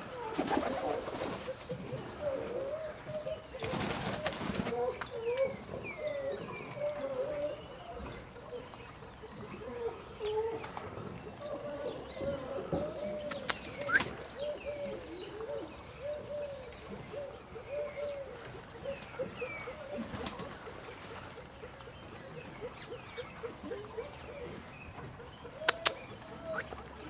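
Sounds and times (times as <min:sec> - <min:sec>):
small birds chirping: 0:11.4 - 0:27.0
bird clucking: 0:22.6 - 0:26.8
sharp clicks: 0:25.6 - 0:26.0.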